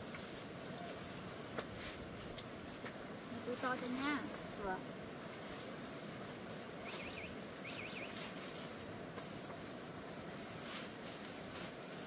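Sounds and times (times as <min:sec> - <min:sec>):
outdoor background noise: 0:00.0 - 0:12.0
small bird chirping: 0:00.8 - 0:01.6, 0:05.4 - 0:06.0, 0:06.8 - 0:08.3.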